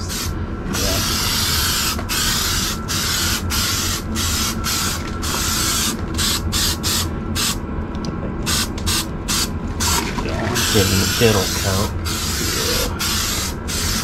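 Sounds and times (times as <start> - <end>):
aerosol spray can hissing: 1.0 - 7.6, 10.6 - 14.0.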